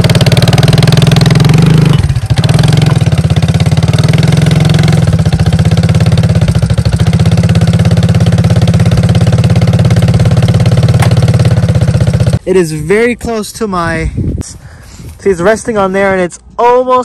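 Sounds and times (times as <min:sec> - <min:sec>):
atv engine running: 0:00.0 - 0:12.4.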